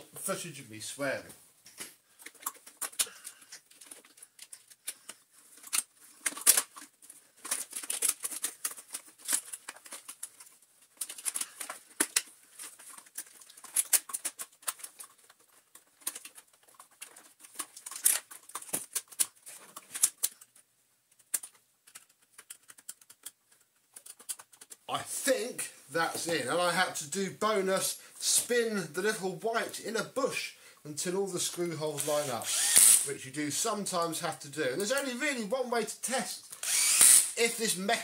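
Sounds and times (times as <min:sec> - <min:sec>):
plastic parts clicking and clattering: 0:01.6 - 0:24.9, 0:34.2 - 0:35.4.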